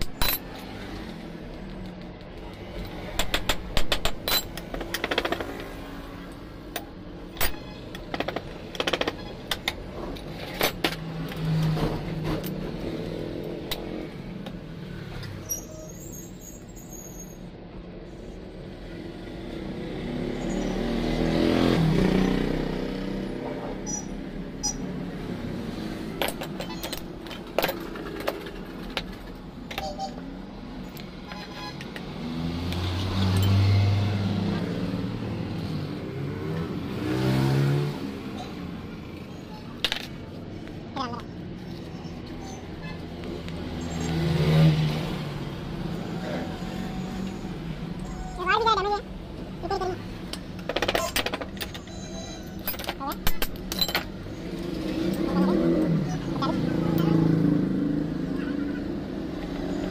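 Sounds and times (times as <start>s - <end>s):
metal tool clinks and knocks: 0.0s - 1.0s, 2.8s - 5.6s, 50.7s - 54.2s
road vehicle passing: 9.8s - 15.5s, 18.3s - 29.6s, 30.2s - 50.7s, 52.5s - 59.9s.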